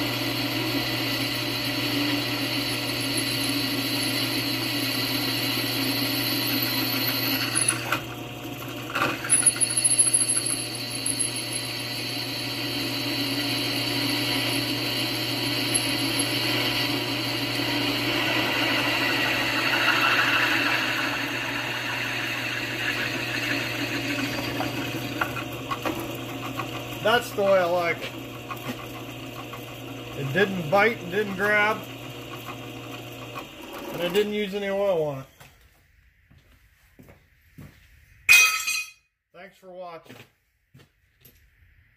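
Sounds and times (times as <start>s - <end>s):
drill press motor hum: 0.0s - 34.6s
drill bit scraping through steel: 2.0s - 8.0s, 8.9s - 11.8s, 13.0s - 25.9s.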